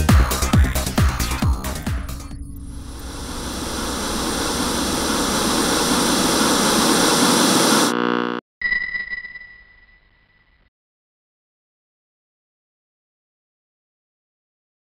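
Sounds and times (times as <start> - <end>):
high electronic tone: 2.4 - 10.4
static hiss: 2.8 - 8.4
short electronic buzz: 2.8 - 10.7.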